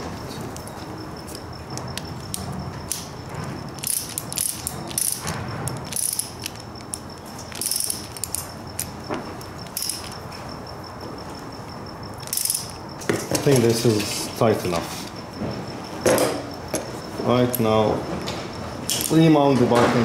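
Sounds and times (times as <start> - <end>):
ratcheting wrench clicking: 3.8 - 8.9, 9.6 - 10.2, 12.2 - 12.7.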